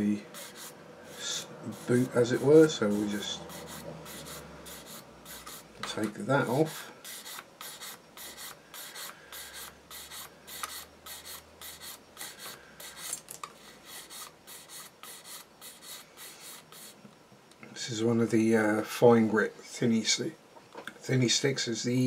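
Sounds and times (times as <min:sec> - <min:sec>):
sanding stick rubbing on plastic: 0:00.3 - 0:05.7, 0:06.6 - 0:17.0.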